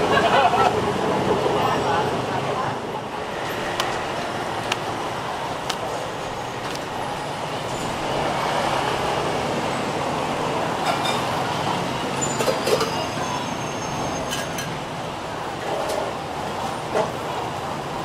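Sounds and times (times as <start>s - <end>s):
road traffic: 0.0s - 18.0s.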